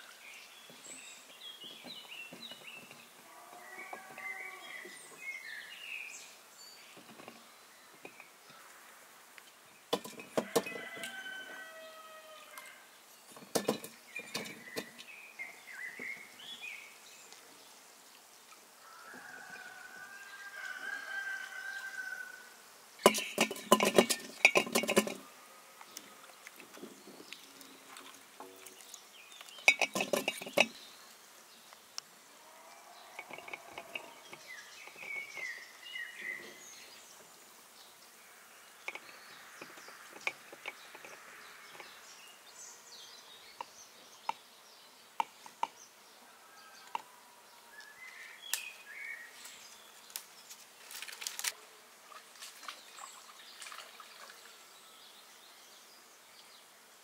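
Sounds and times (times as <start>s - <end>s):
birds chirping: 0.0s - 50.6s
kitchenware clinking: 13.4s - 14.9s, 23.0s - 25.2s, 29.6s - 30.8s.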